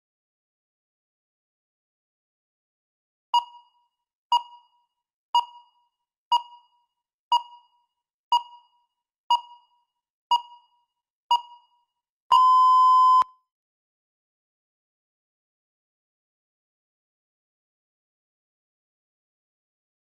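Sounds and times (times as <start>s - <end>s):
timer long steady beep: 3.4s - 4.8s, 5.4s - 13.4s
timer short electronic beeps: 7.3s - 7.7s, 11.3s - 13.3s.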